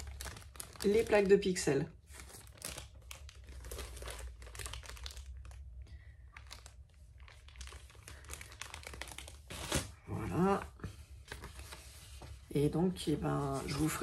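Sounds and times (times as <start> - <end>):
plastic bag crinkling: 0.0 - 10.6.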